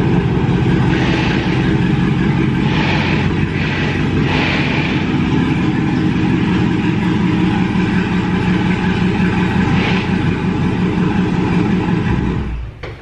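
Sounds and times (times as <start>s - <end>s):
car engine idling: 0.0s - 13.0s.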